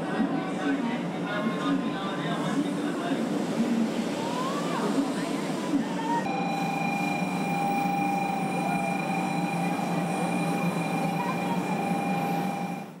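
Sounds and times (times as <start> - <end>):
background murmur: 0.0 - 13.0
steady high-pitched tone: 6.2 - 13.0.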